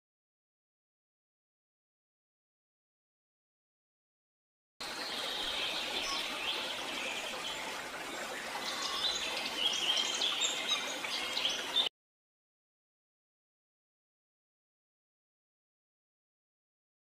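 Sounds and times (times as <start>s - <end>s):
songbirds chirping: 4.8s - 11.9s
stream water flowing: 4.8s - 11.9s.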